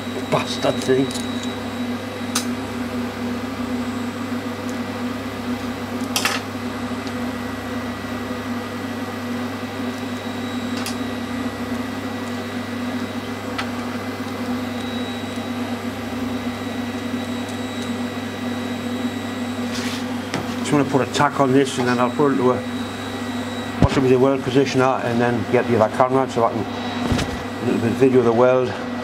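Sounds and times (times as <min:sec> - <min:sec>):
electric machine hum: 0:00.0 - 0:29.0.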